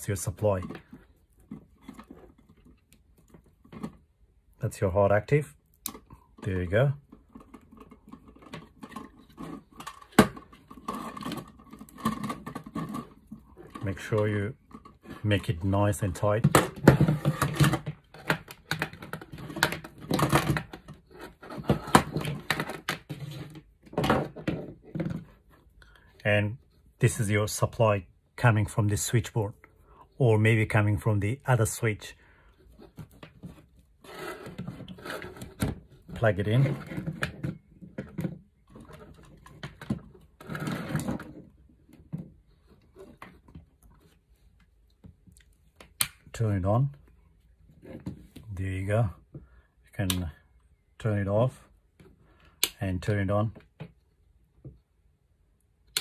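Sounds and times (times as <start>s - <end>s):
plastic objects scraping on desk: 32.7s - 41.5s.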